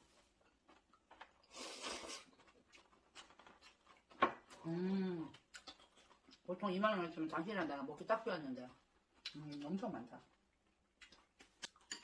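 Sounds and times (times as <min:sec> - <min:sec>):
person slurping noodles: 0:01.5 - 0:02.3.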